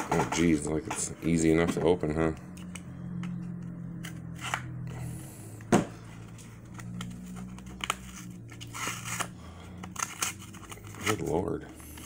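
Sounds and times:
steady low hum: 0.0 - 12.0
paper wrapper tearing and crinkling: 6.7 - 12.0.

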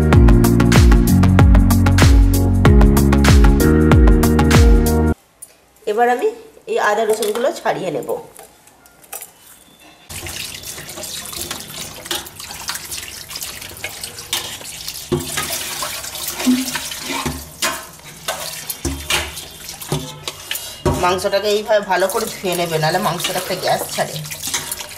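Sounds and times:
tap water running into bowl: 10.1 - 24.9
water splashing: 10.1 - 24.9.

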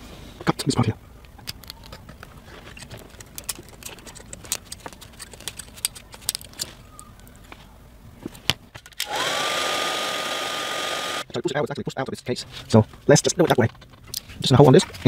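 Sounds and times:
heat gun rushing air and whine: 9.0 - 11.3.

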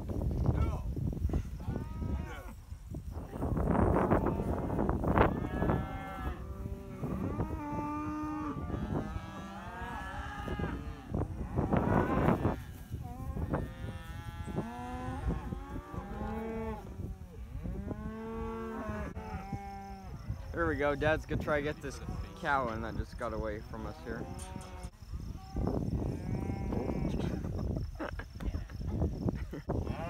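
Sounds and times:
cattle mooing: 4.0 - 20.2, 23.8 - 24.9.

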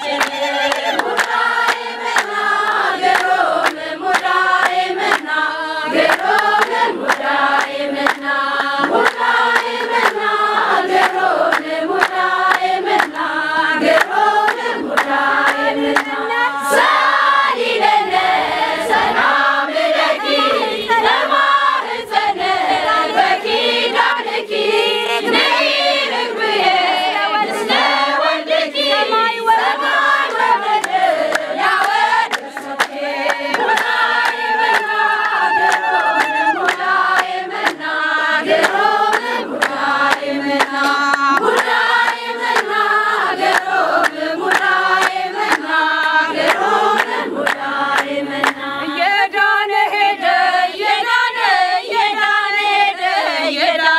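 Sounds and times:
hand-clapping: 0.0 - 16.4, 28.8 - 49.2
women singing a hymn: 0.0 - 53.9.

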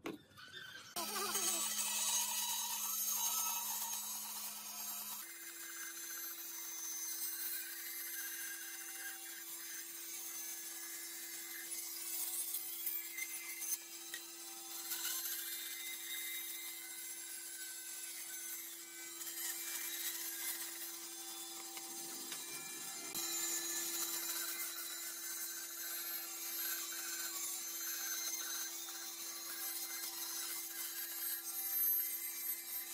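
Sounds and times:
bandsaw humming: 0.0 - 32.9.

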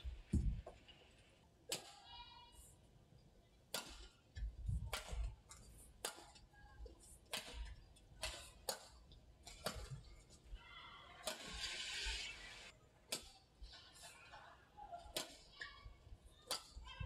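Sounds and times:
rackets striking shuttlecock: 1.7 - 2.0, 3.7 - 10.1, 11.2 - 11.7, 13.1 - 15.8, 16.4 - 16.9.

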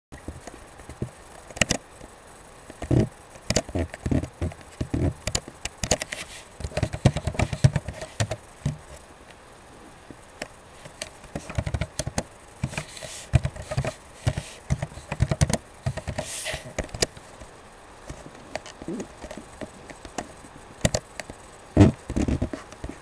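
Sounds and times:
computer mouse clicks: 1.0 - 1.8, 2.7 - 8.4, 10.4 - 17.2, 18.5 - 23.0
keyboard key presses: 5.3 - 8.8, 11.4 - 16.3.

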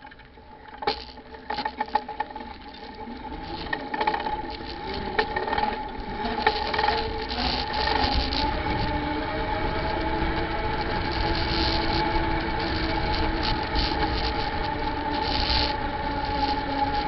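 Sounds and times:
steady hum: 0.0 - 17.0
wind rumble: 3.4 - 17.0.

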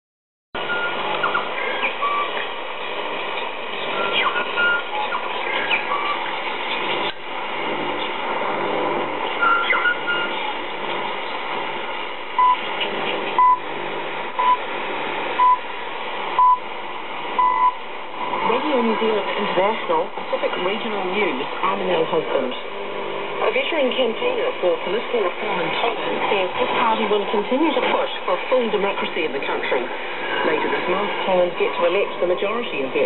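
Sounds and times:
time-signal pips: 0.6 - 2.5, 3.8 - 7.2, 9.4 - 10.6, 12.4 - 12.7, 13.4 - 13.7, 14.4 - 14.7, 15.4 - 15.7, 16.4 - 16.7, 17.4 - 17.8
radio hiss and static: 0.6 - 33.0
warbling interference tones: 0.6 - 33.0.

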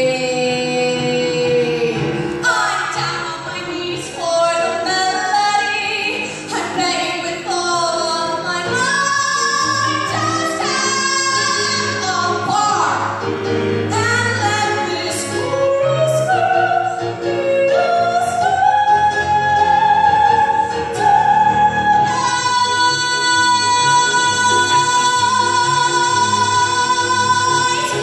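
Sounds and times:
woman singing into microphone: 0.0 - 13.2, 13.9 - 28.0
low musical accompaniment: 0.0 - 28.0.

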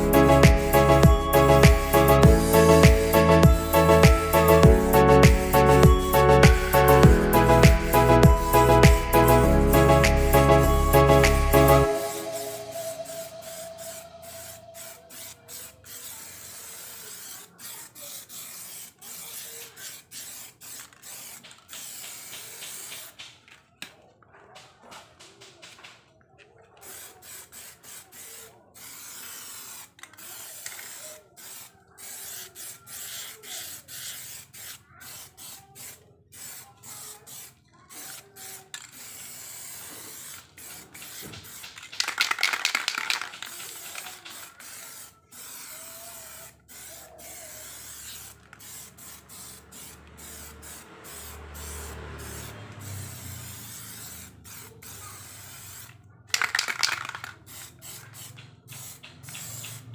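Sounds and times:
aerosol spray can bursts: 0.0 - 23.5, 26.8 - 59.9.

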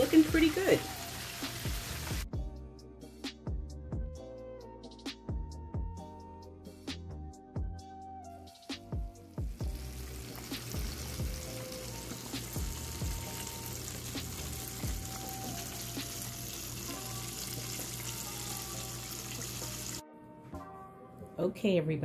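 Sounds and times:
food deep-frying in hot oil: 0.0 - 2.3, 9.4 - 20.0
background music: 0.0 - 22.0.

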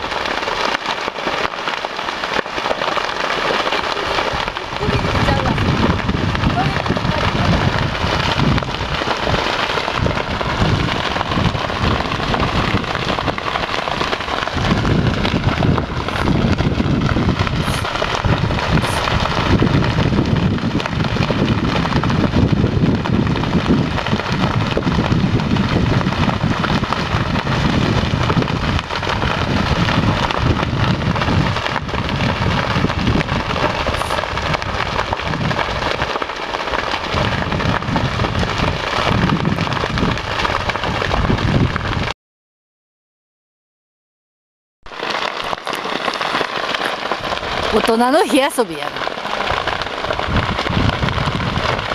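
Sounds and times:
fire crackling: 0.0 - 42.1, 44.9 - 51.9
gusty wind rumble on microphone: 4.1 - 42.1, 48.8 - 51.9.

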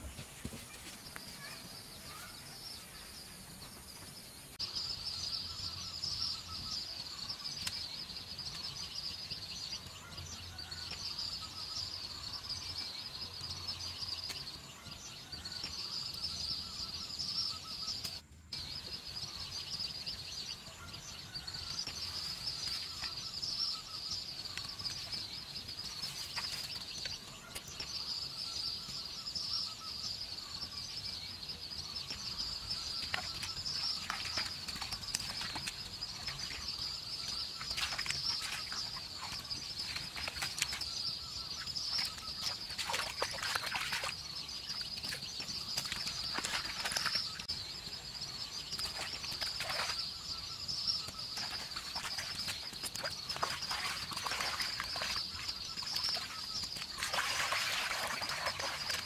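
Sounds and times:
high chirping chorus: 16.6 - 59.0.

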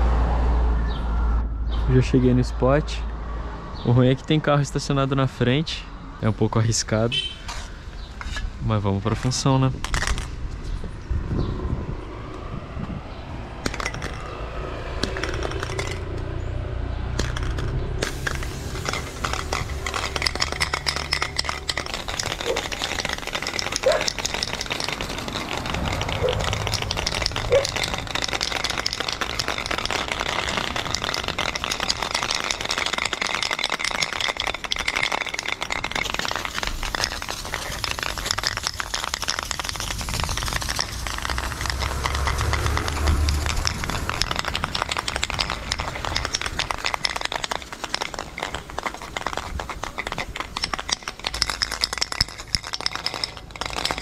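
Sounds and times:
spray paint cans hissing: 15.0 - 16.1, 17.1 - 54.0.

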